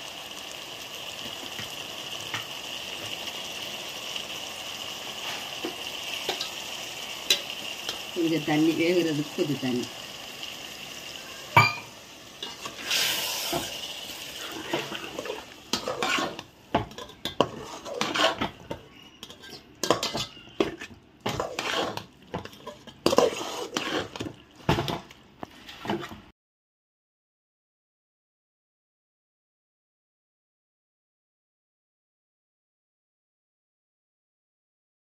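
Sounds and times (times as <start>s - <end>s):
water hissing in hot pot: 0.0s - 20.3s
steel spoon scraping metal pot: 11.6s - 13.7s, 14.4s - 24.3s.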